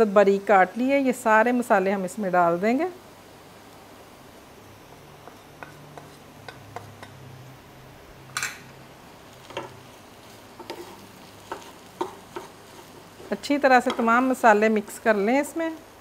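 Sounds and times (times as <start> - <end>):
spatula striking pan: 5.2 - 7.2, 10.6 - 12.6, 13.8 - 14.2
wooden spatula tapping and scraping: 5.2 - 7.2, 9.4 - 15.1
stirring mashed potatoes: 9.5 - 14.1.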